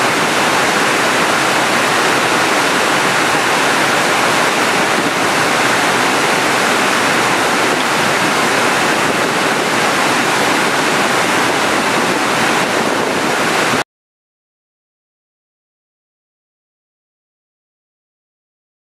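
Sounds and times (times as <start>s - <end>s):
water rushing down spillway: 0.0s - 13.8s.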